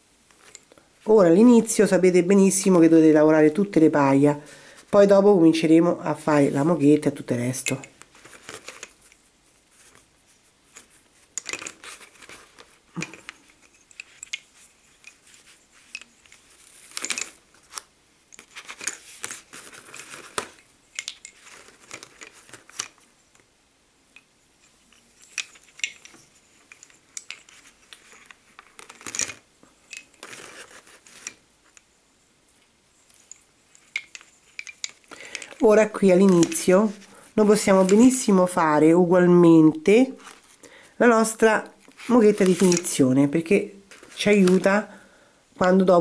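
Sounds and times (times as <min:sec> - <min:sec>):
thread rustling: 0:00.0 - 0:05.6, 0:06.3 - 0:23.5, 0:24.1 - 0:46.0
lace bobbins clicking: 0:00.3 - 0:00.9, 0:07.5 - 0:10.1, 0:10.7 - 0:23.5, 0:24.2 - 0:31.9, 0:32.6 - 0:38.6, 0:40.1 - 0:44.9.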